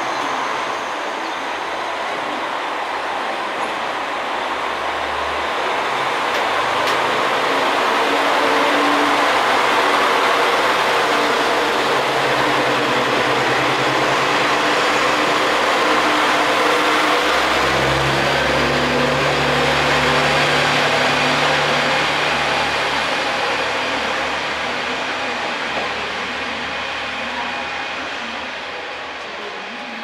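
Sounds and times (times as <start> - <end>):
diesel railcar passing: 0.0 - 30.0.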